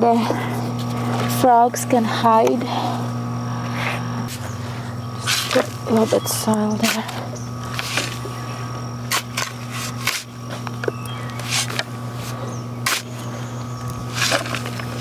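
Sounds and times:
steady low hum: 0.0 - 15.0
shovel scraping soil: 5.2 - 8.3, 9.0 - 10.7, 11.4 - 15.0.

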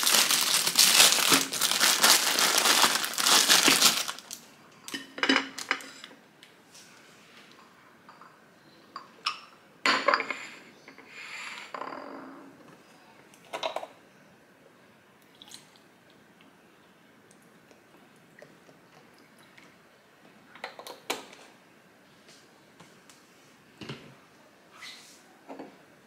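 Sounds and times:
carton rustling: 0.0 - 4.4.

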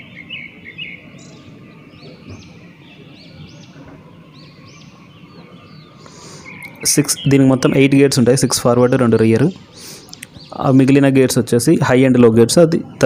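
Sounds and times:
small bird chirping: 0.0 - 11.1
faint outdoor background noise: 0.0 - 13.0.

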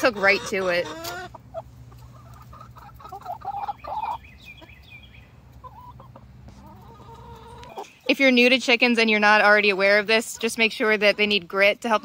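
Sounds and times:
hens clucking: 0.0 - 12.0.

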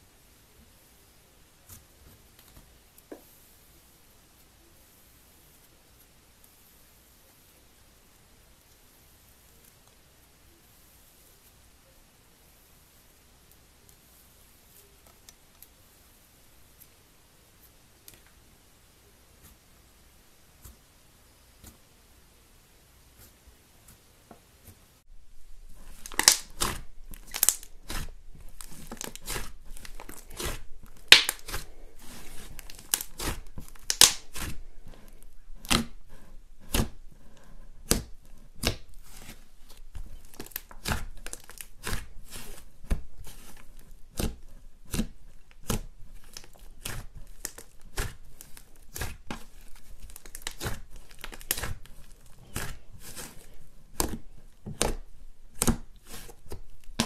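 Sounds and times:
soft handling of slime: 0.1 - 22.1, 22.9 - 57.0
slime crackling and popping: 25.7 - 34.6, 37.8 - 57.0.

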